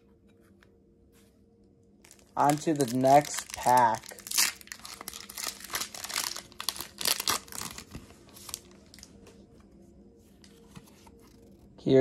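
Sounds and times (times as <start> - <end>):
foil wrapper crinkling and tearing: 2.0 - 9.1
cards rustling and ticking: 2.1 - 9.2.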